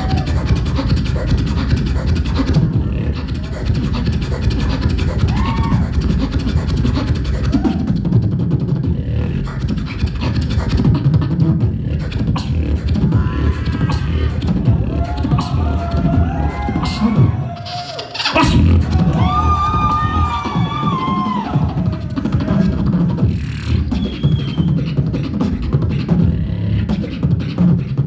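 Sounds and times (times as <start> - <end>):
beatboxing drum sounds: 0.0 - 28.0
short pitched vocal tones: 8.9 - 19.5.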